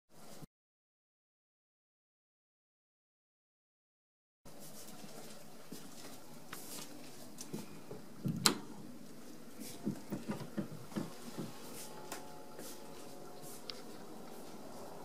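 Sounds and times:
footsteps on wooden floor: 9.6 - 12.8.

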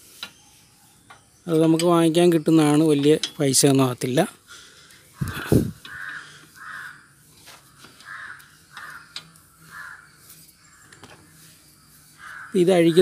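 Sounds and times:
crow cawing: 5.1 - 11.0, 12.2 - 13.0.

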